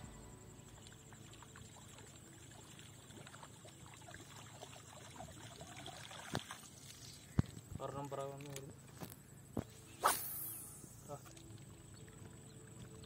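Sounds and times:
water trickling and splashing: 0.2s - 9.3s, 10.2s - 13.0s
small ticks: 6.3s - 9.2s.

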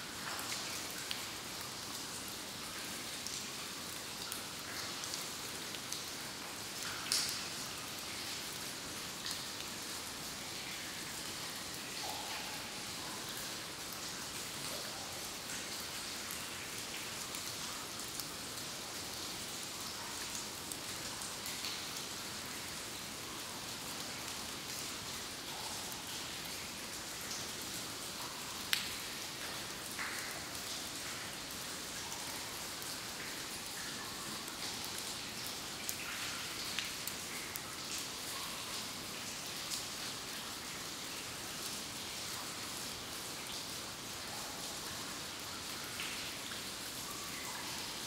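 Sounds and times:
water drops dripping: 4.2s - 7.6s, 10.6s - 14.1s.

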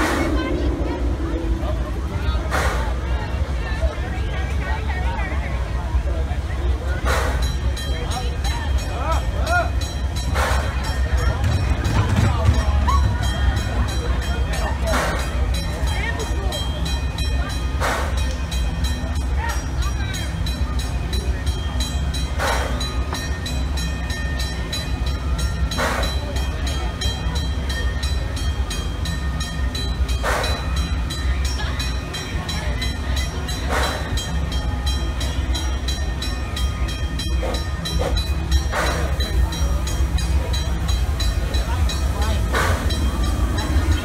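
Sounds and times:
steam hiss: 0.0s - 3.1s, 7.0s - 7.8s, 10.1s - 11.2s, 17.7s - 18.3s, 30.1s - 30.8s
steam locomotive rumble: 0.0s - 44.0s.

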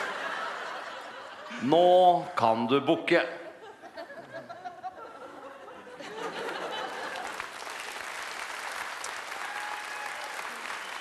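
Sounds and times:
audience applause: 6.1s - 11.0s.

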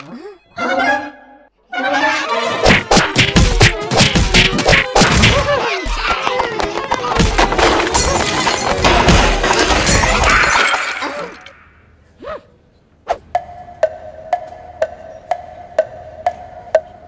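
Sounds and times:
busy cartoon music: 0.0s - 10.2s
crashing and smashing effects: 7.2s - 11.5s.

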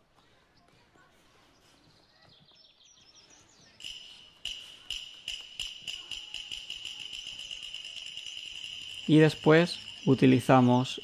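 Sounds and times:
high-pitched ringing tone: 3.8s - 11.0s.

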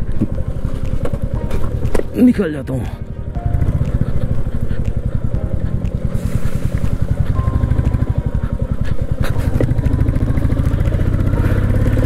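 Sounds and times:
motorcycle engine at low revs: 3.3s - 12.0s.

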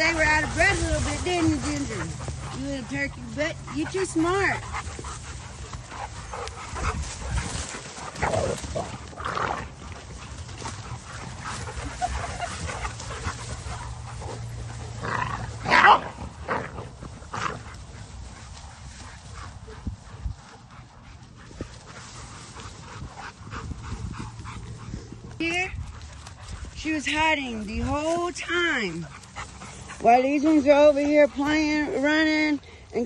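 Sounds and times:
dogs running through grass: 0.0s - 33.0s
dogs barking: 10.2s - 16.6s.

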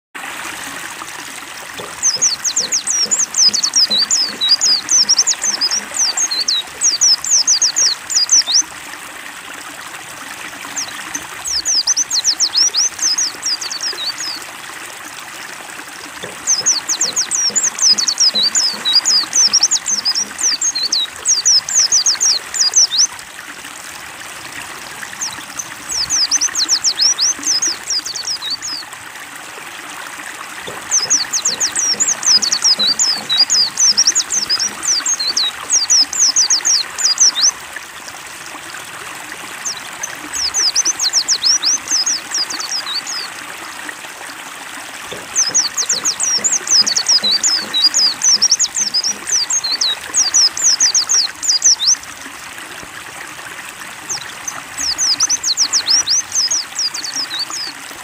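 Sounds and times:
running water trickling: 0.2s - 58.0s
bird twittering song: 1.8s - 8.7s, 10.7s - 14.4s, 16.2s - 23.1s, 25.1s - 28.9s, 30.7s - 37.6s, 39.6s - 43.3s, 45.1s - 52.0s, 54.1s - 57.7s.

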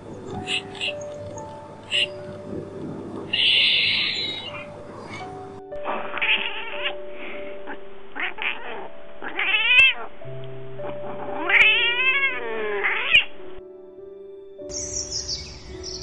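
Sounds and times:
soft background music: 0.0s - 16.0s
cat meowing: 3.4s - 4.6s, 6.0s - 7.0s, 7.7s - 10.1s, 11.4s - 13.3s.

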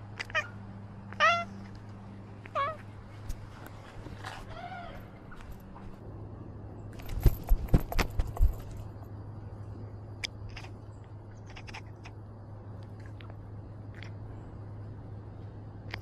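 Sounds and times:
clicks and knocks on camera: 7.0s - 8.8s.

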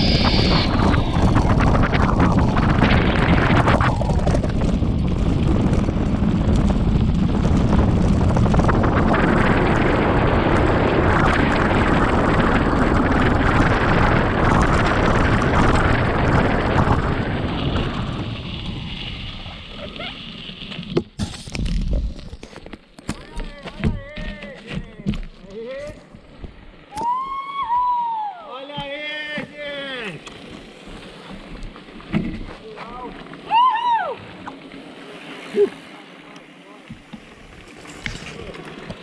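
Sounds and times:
wind buffeting microphone: 0.0s - 19.8s
bike rattling over stones: 0.0s - 27.2s, 28.7s - 39.0s
bike tyres rumbling on gravel: 0.0s - 39.0s.

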